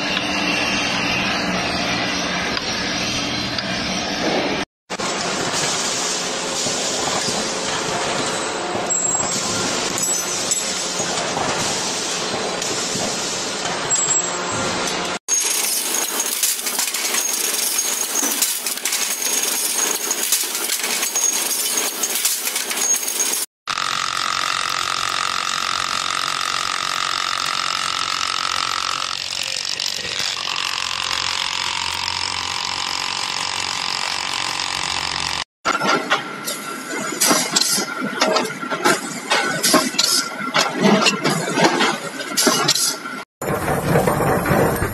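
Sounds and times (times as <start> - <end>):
machine high whine: 0.0 - 13.0, 13.6 - 35.4
mechanical clatter: 3.5 - 44.9
machine fast rattling strokes: 5.0 - 35.5
lathe cutting metal: 13.5 - 35.4.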